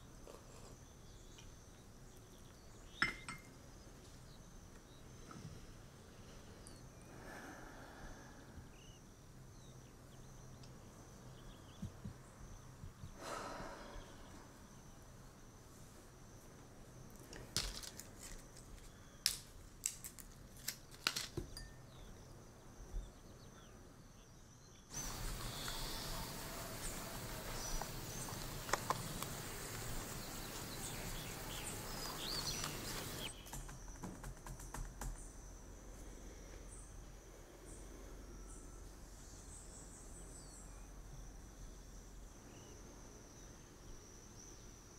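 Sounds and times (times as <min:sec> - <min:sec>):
loud hiss-like noise: 0:13.1 - 0:16.2, 0:24.9 - 0:33.4
high insect trill: 0:24.6 - 0:44.9
fingers tapping laptop keyboard: 0:32.6 - 0:35.2.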